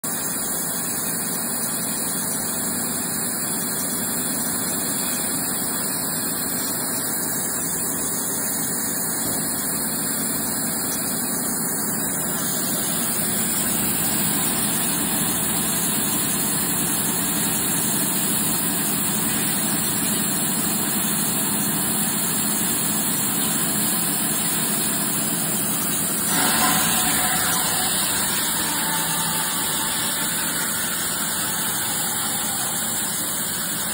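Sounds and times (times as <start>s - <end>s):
band saw humming: 25.8s - 33.9s.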